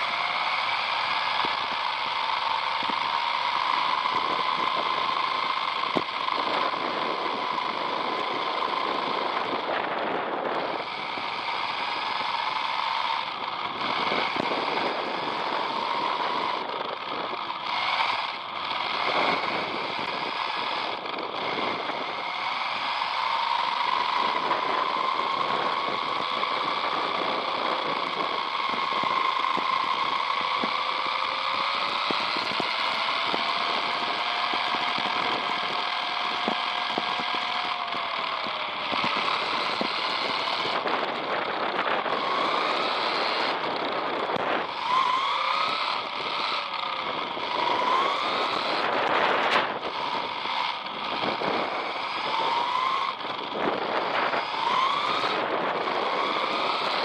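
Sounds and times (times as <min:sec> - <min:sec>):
tyres hissing on asphalt: 0:00.0 - 0:09.1, 0:10.8 - 0:40.8
electric motor and gears whine: 0:00.0 - 0:57.0.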